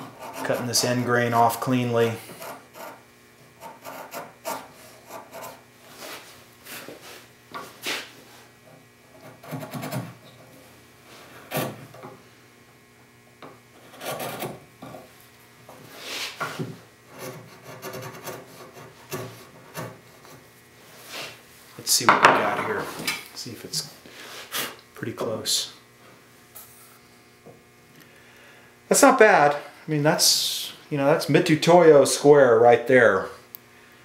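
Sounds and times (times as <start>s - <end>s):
chisel scraping wood: 0.0s - 1.1s, 2.2s - 6.2s, 8.7s - 10.4s, 11.2s - 12.1s, 13.7s - 15.1s, 15.7s - 21.4s.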